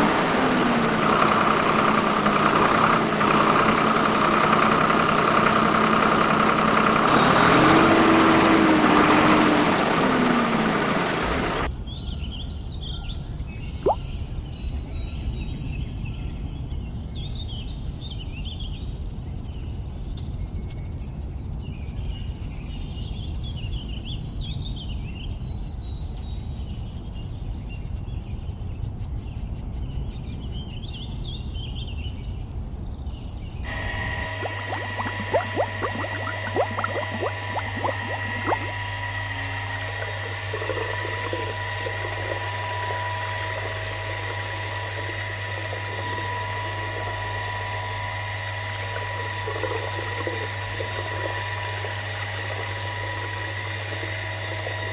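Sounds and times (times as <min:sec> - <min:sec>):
birds chirping: 0:33.8 - 0:54.9.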